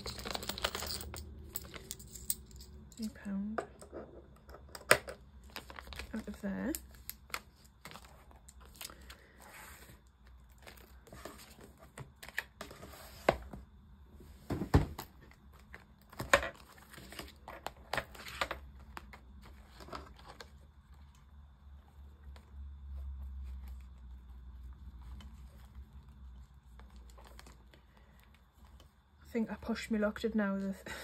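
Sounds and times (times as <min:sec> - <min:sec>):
plastic pouches crinkling: 0:05.4 - 0:09.2.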